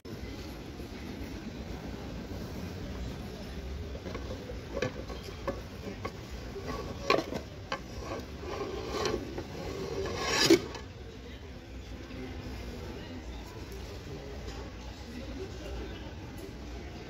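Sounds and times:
pan scraping out of stack: 0:04.7 - 0:10.9.

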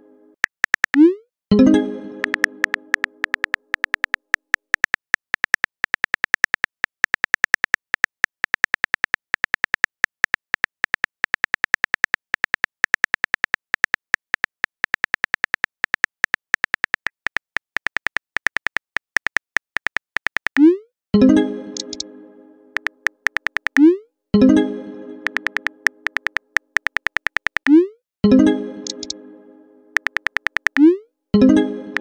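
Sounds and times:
phone keyboard tap clicks: 0:02.2 - 0:20.6, 0:21.8 - 0:22.0, 0:22.8 - 0:23.9, 0:25.2 - 0:27.7, 0:28.8 - 0:29.2, 0:30.0 - 0:30.9.

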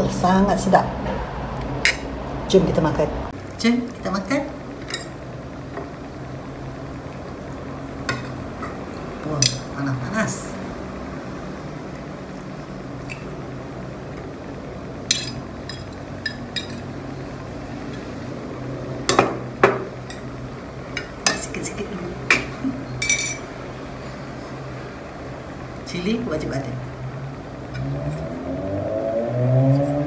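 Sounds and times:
steady low hum: 0:00.0 - 0:30.0
fork clinking on ceramic plate: 0:15.1 - 0:16.8, 0:22.3 - 0:23.4.

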